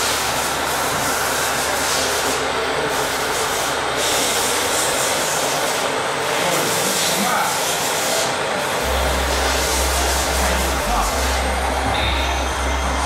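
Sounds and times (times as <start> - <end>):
low hum: 8.8 - 13.0.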